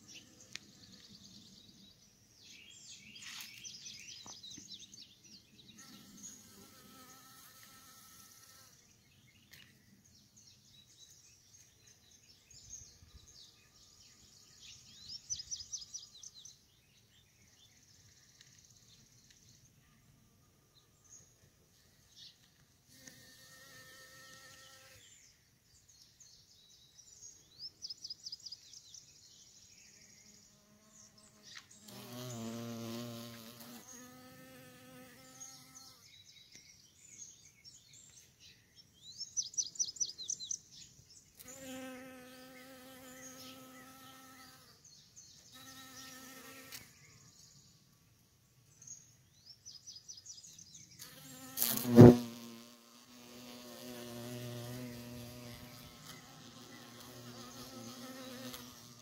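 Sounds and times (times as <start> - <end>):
bees buzzing in flight: 51.1 - 59.0.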